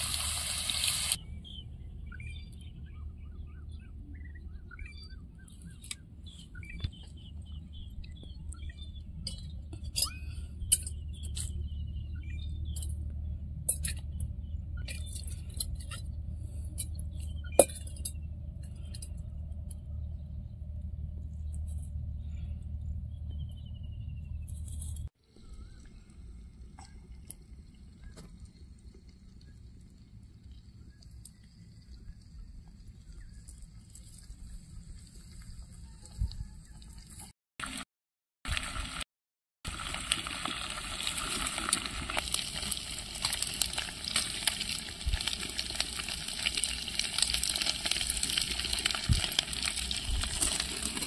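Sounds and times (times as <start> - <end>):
small birds chirping: 1.1 - 20.6, 29.3 - 37.2
metal pots and bowls clinking: 17.5 - 18.2.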